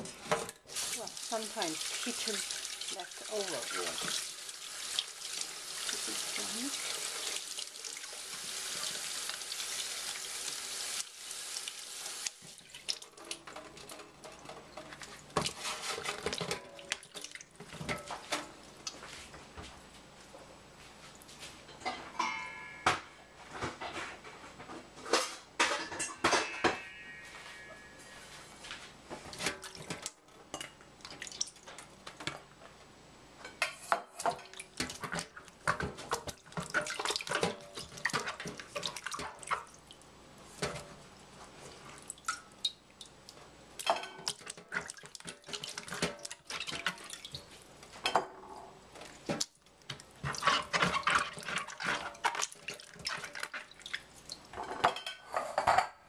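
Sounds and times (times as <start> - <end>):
water splashing in saucepan: 0.6 - 19.0, 29.3 - 31.9, 34.1 - 41.0, 41.6 - 47.9, 48.9 - 55.1.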